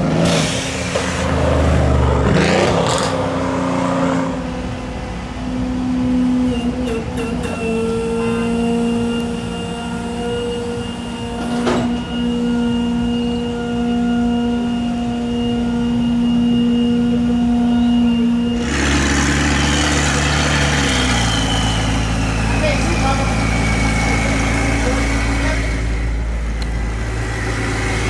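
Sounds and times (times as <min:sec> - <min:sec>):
engine running steadily: 0:00.0 - 0:28.0
rough engine sound: 0:00.0 - 0:28.0.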